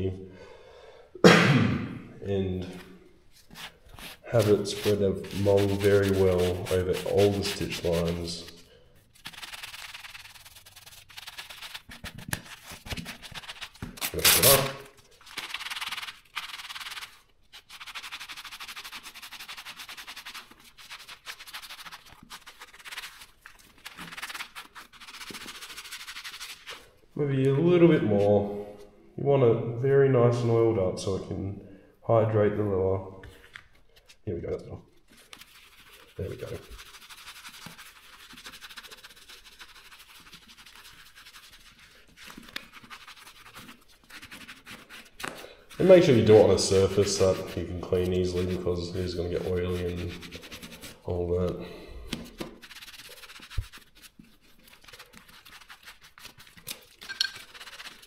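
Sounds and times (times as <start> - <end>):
sponge scrubbing leather: 3.3 - 27.0, 35.1 - 51.4, 52.1 - 58.0.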